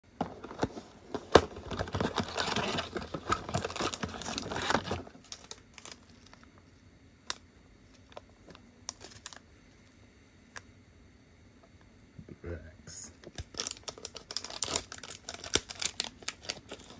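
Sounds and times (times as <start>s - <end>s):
packaging rustling and crinkling: 0.2s - 6.6s, 7.8s - 9.4s, 13.3s - 16.9s.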